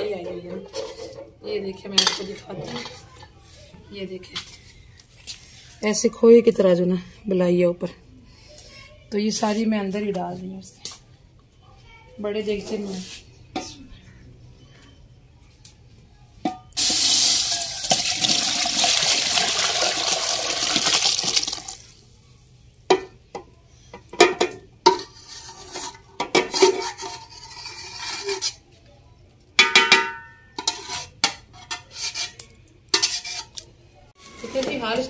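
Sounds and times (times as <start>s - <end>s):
metal spatula scraping a pot: 0.1s - 3.4s, 24.9s - 28.7s, 30.4s - 33.6s
milk pouring into a metal pot: 16.8s - 21.9s.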